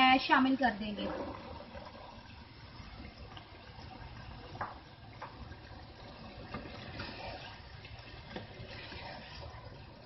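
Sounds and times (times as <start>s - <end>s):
spoon stirring in pot: 6.0s - 9.8s.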